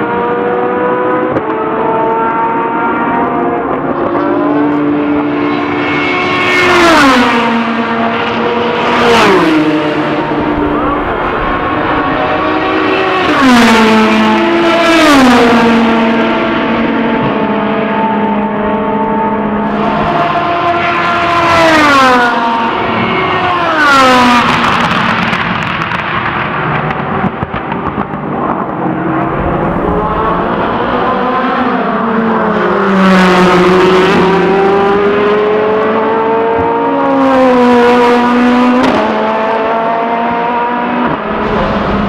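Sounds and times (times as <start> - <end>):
racing car engine passing at speed: 0.0 - 42.0.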